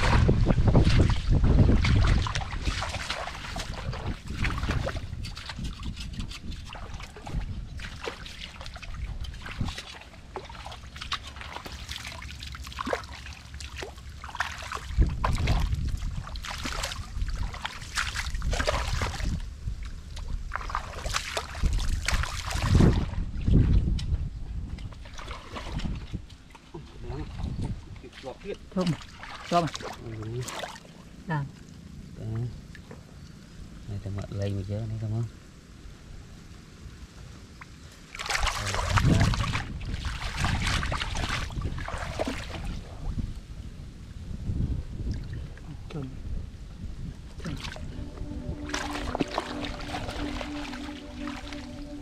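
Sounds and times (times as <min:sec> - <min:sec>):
wind on microphone: 0:00.0 - 0:10.4, 0:14.7 - 0:28.6, 0:38.3 - 0:52.0
mud and water squelching: 0:00.0 - 0:33.4, 0:37.5 - 0:43.8, 0:47.1 - 0:52.0.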